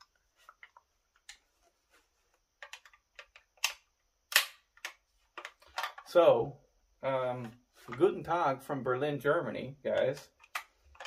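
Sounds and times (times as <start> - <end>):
plastic and metal parts clacking: 0.0 - 2.0, 2.6 - 6.2, 9.9 - 11.0.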